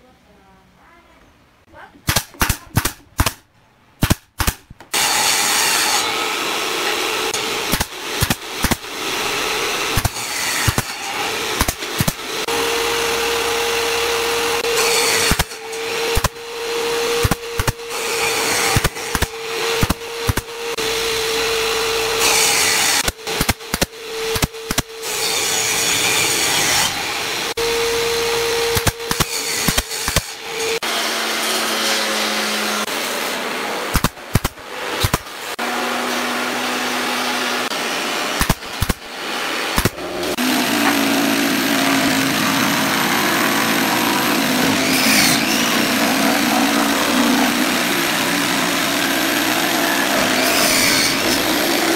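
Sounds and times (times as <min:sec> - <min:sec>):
nail gun firing: 0:02.0 - 0:05.2, 0:07.3 - 0:12.5, 0:14.6 - 0:20.6, 0:22.7 - 0:25.0, 0:28.6 - 0:30.4, 0:33.9 - 0:35.4, 0:38.3 - 0:39.1, 0:39.7 - 0:41.2
electric jigsaw cutting: 0:04.9 - 0:51.9.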